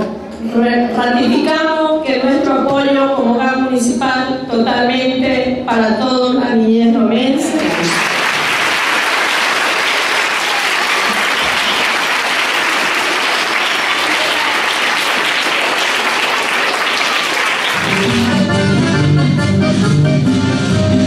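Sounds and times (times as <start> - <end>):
audience applauding: 7.6 - 18.6
music: 17.7 - 21.0.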